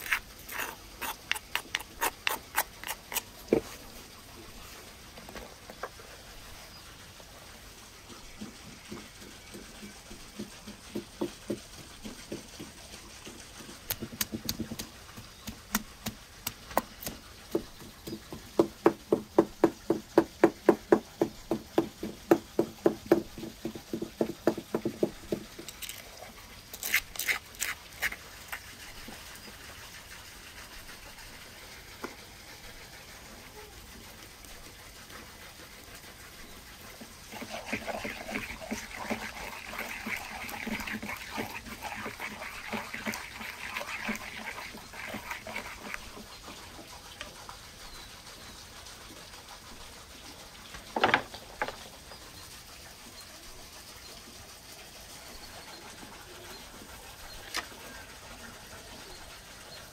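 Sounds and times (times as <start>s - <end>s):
pestle pounding in wooden mortar: 0.0s - 3.6s, 8.4s - 25.7s, 37.3s - 46.6s.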